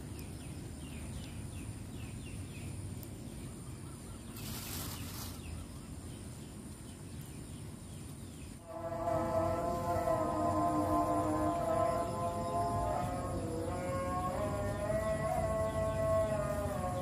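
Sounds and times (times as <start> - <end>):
small bird chirping: 0.0 - 8.6
sustained pitched tone: 8.6 - 17.0.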